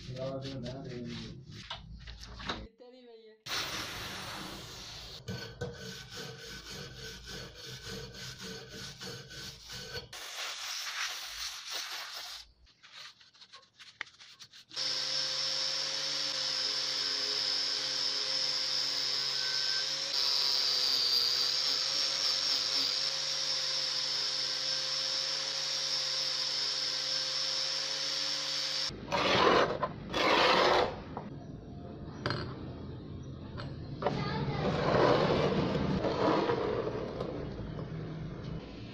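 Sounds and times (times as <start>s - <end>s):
angle grinder with wire brush: 3.8s - 12.4s, 14.7s - 31.0s.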